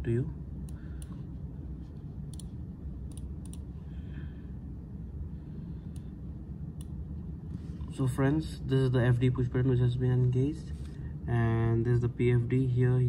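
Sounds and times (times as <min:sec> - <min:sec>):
low background hum: 0:00.0 - 0:13.0
computer mouse clicks: 0:03.1 - 0:03.6.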